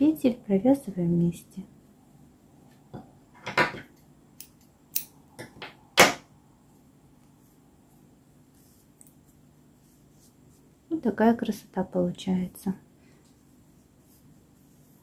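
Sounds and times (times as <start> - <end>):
crochet work rustling: 6.6 - 15.0.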